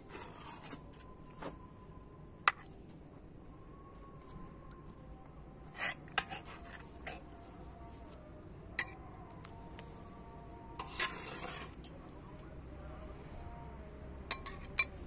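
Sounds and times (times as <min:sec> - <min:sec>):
ladle scraping: 0:10.8 - 0:11.8
metal ladle clinking on pan: 0:14.3 - 0:15.0.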